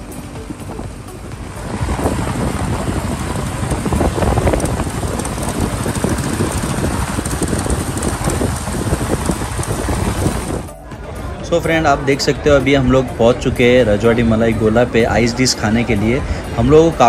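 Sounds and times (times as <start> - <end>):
wind buffeting microphone: 0.0 - 10.7
motorcycle engine: 0.0 - 11.1.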